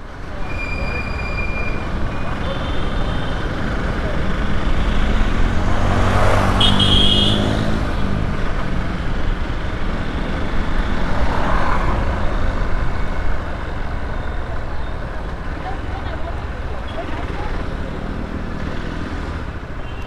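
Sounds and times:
road and wind noise: 0:00.0 - 0:20.0.

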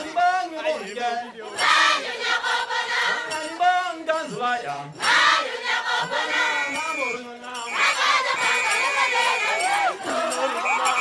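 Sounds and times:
man singing into a microphone: 0:00.0 - 0:01.6, 0:03.1 - 0:05.0, 0:06.0 - 0:07.8
crowd singing and chanting: 0:00.0 - 0:11.0.

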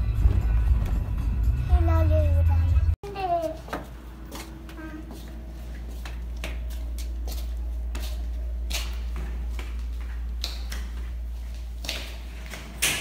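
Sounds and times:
steady low rumble: 0:00.0 - 0:03.0
footsteps on tiled floor: 0:03.1 - 0:12.8.

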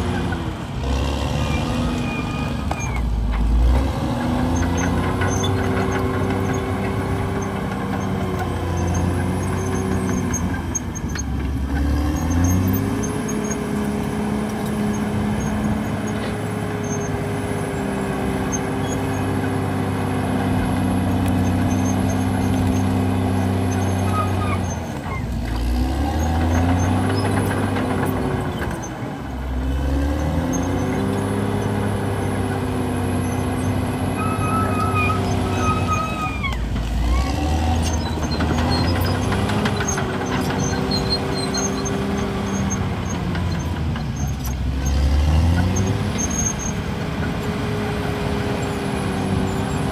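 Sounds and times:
bulldozer diesel engine under load: 0:00.0 - 0:49.9.

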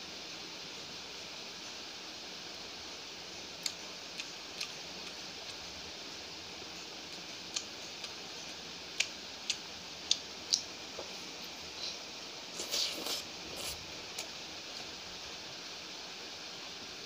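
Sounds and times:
steady hiss: 0:00.0 - 0:17.0
wet mouth clicks while chewing: 0:03.6 - 0:05.6, 0:07.5 - 0:08.2, 0:09.0 - 0:10.7.

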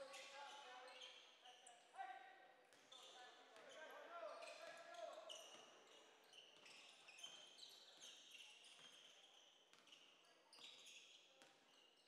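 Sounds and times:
sneaker squeaks: 0:02.9 - 0:12.0.

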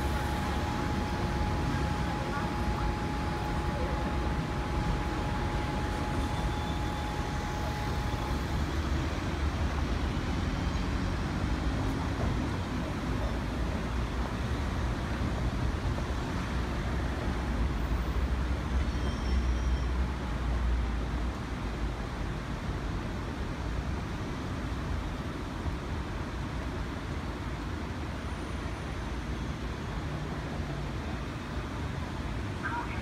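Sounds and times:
thin steady whine: 0:00.0 - 0:10.2
low rumble of traffic: 0:00.0 - 0:33.0.

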